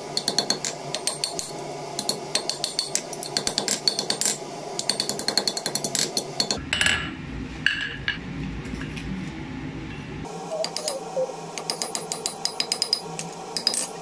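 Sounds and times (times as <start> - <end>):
hammer striking hot steel on anvil: 0.0 - 7.1, 11.6 - 14.0.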